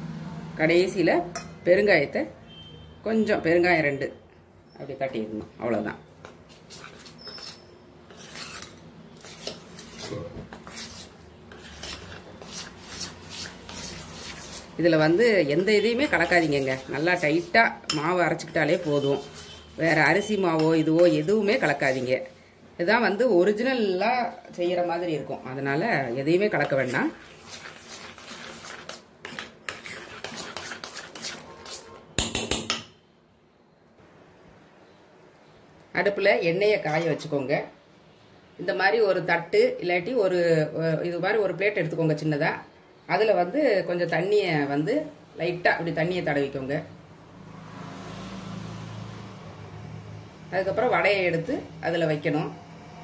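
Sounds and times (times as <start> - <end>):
batter scraping in steel bowl: 6.5 - 22.4, 26.0 - 32.6
spoon clinking against metal bowl: 17.8 - 18.2.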